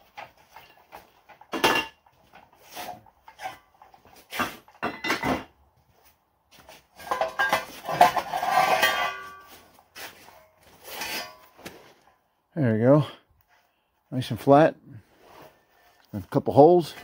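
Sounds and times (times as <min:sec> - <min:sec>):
steel parts clanking and scraping: 0:00.0 - 0:05.6, 0:06.9 - 0:12.2
ringing metal clatter: 0:07.0 - 0:09.6.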